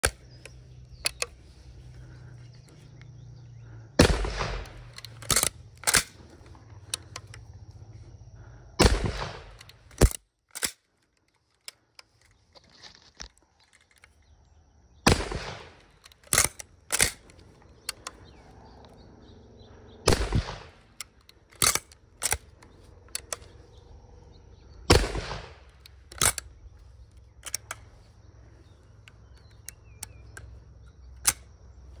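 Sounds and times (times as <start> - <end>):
gun action clicks: 0.0 - 3.2, 4.0 - 7.5, 8.8 - 14.2, 15.1 - 19.0, 20.1 - 23.7, 24.9 - 32.0
shotgun shots: 4.0 - 6.1, 8.8 - 10.2, 15.0 - 17.2, 20.0 - 21.0, 24.9 - 26.4.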